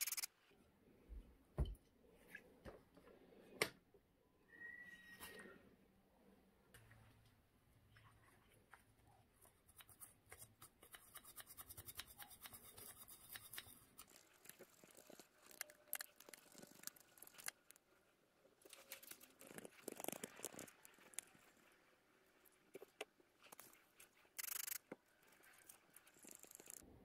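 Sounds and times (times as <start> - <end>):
toothbrush scrubbing metal: 0.0 - 0.3, 9.6 - 17.6.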